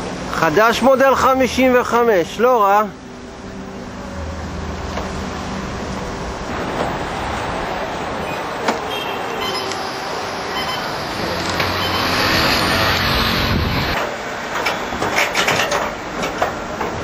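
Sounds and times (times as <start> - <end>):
street traffic: 0.0 - 17.0
vehicle engine: 3.3 - 16.9.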